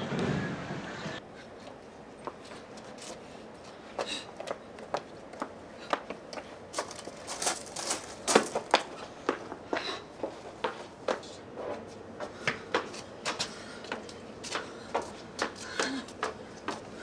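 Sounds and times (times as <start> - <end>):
rustling: 6.8 - 8.9.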